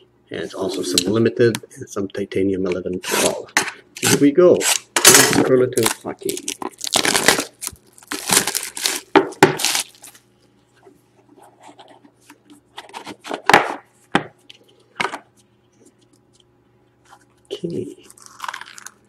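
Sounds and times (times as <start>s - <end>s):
cardboard tearing and crinkling: 4.0s - 10.2s.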